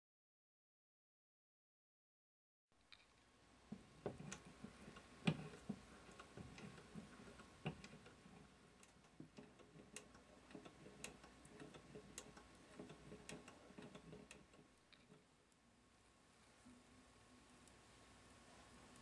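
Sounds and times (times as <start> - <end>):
toy steam engine knocking: 3.8 - 14.7.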